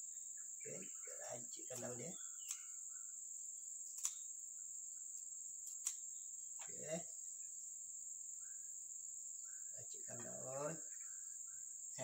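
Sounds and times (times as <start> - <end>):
crickets chirring: 0.0 - 12.0
scissors cutting leaves: 1.6 - 2.8, 3.8 - 4.3, 5.6 - 6.9.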